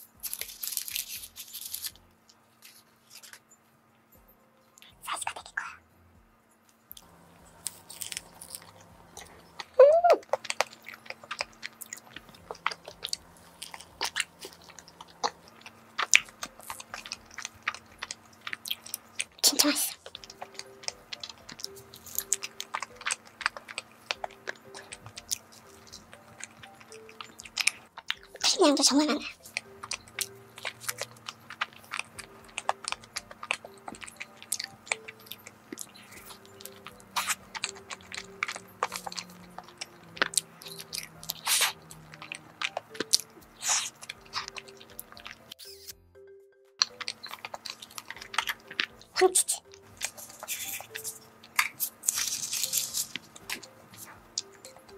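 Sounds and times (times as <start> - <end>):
wet chewing clicks and smacks: 6.9 - 45.9, 46.8 - 54.9
person humming: 9.2 - 10.3.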